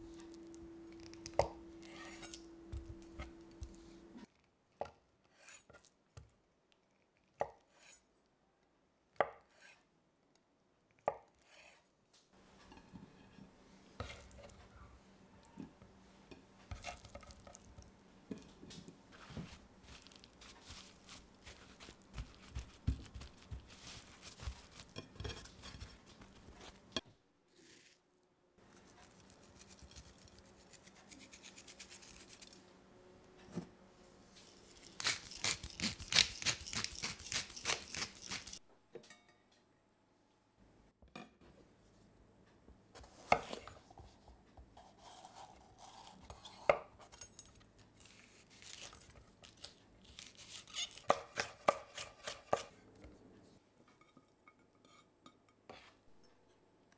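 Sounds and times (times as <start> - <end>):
knife cutting tofu: 19.4 - 26.8, 34.9 - 38.6, 48.0 - 52.8.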